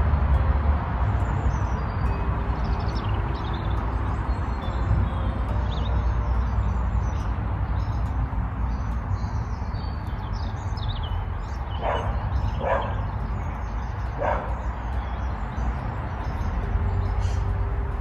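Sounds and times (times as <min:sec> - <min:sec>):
birds chirping: 0:00.9 - 0:18.0
dog barking: 0:11.8 - 0:13.0, 0:14.2 - 0:14.6.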